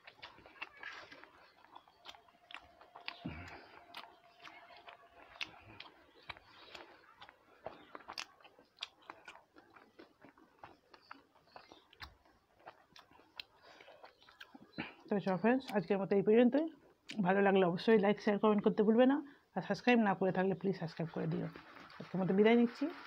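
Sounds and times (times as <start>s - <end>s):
fingers mixing soft food: 0.0s - 15.8s
chewing with mouth clicks: 0.0s - 15.9s, 16.5s - 17.2s.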